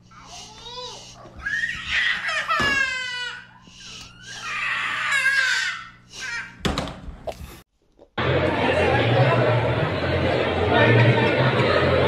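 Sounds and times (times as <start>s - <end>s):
toddler crying and screaming: 0.5s - 6.6s.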